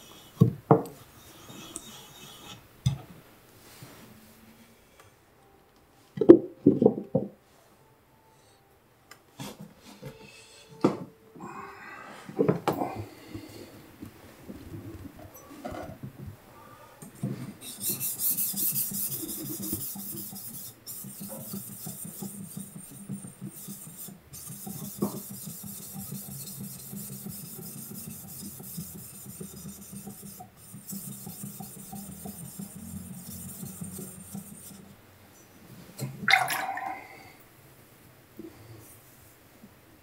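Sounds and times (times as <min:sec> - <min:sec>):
knife scraping on sharpening stone: 0:01.2 - 0:02.6.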